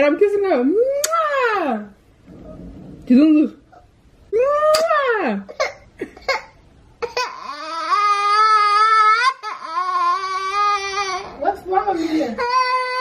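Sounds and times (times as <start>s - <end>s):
toddler girl crying: 7.0s - 11.4s, 12.3s - 13.0s.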